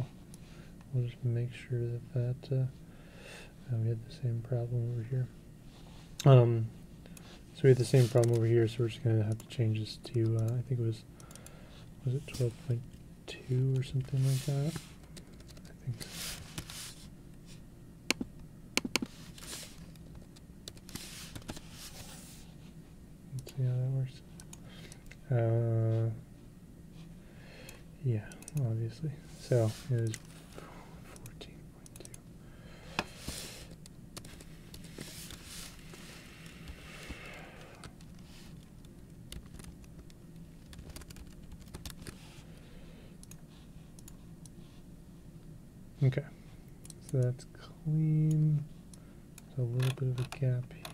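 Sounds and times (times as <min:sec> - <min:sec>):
low steady hum: 0:00.0 - 0:50.9
keyboard keys clicking: 0:39.3 - 0:42.2.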